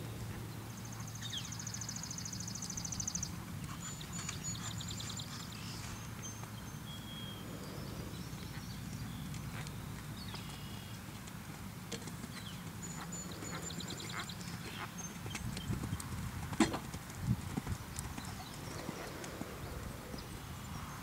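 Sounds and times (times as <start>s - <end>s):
horse hooves thudding on sand: 11.1s - 19.6s.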